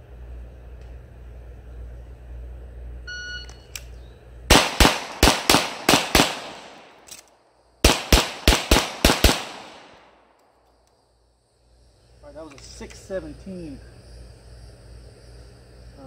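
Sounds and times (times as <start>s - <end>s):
handgun shots: 4.5s - 10.1s.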